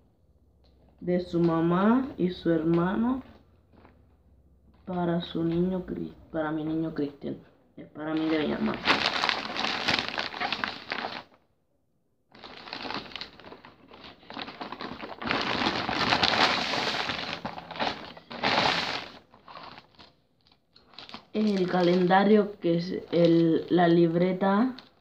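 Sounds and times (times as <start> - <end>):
gift wrapping crinkling: 8.1 - 11.4, 12.3 - 23.7.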